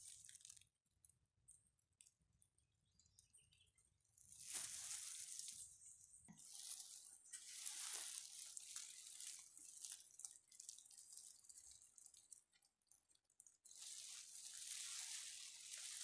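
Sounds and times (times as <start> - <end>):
rain patter on wet leaves: 0.0 - 1.1, 4.2 - 5.7, 6.4 - 16.0.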